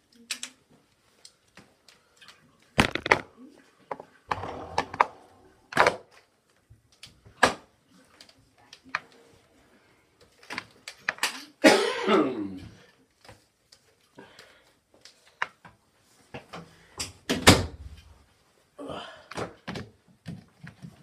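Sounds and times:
heavy thump: 4.3s - 5.5s
short falling voice-like sound: 4.3s - 5.7s
knocks and thumps: 4.3s - 5.9s.

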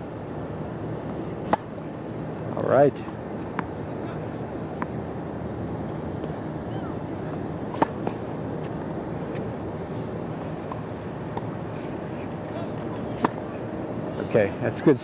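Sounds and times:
steady outdoor hiss: 0.0s - 15.0s
tennis ball knocks: 1.4s - 1.7s, 7.3s - 8.2s, 13.1s - 13.4s.

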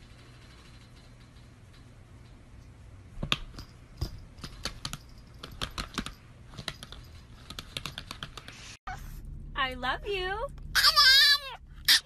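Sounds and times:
laptop keyboard keys clicking: 4.4s - 8.6s.

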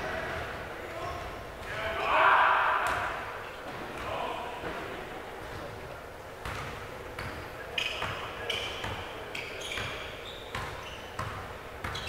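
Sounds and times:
basketball bouncing on court: 6.4s - 9.1s, 9.7s - 12.0s
sneaker squeaks: 6.4s - 12.0s.

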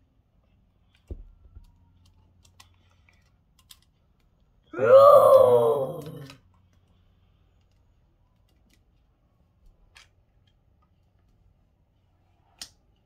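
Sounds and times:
plastic toys clicking: 2.0s - 4.4s.

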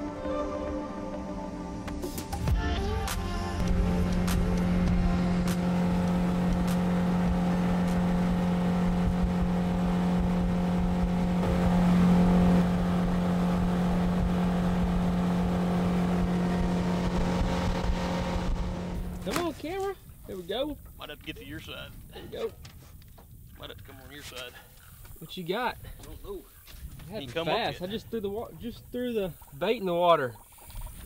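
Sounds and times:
outboard engine drone: 0.0s - 20.4s.

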